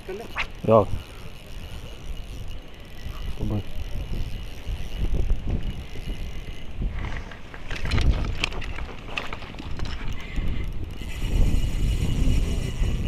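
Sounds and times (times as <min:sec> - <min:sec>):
sharp clicks and rustles: 0:00.0 - 0:13.0
spinning reel whirring: 0:00.0 - 0:13.0
wind buffeting microphone: 0:00.0 - 0:13.0.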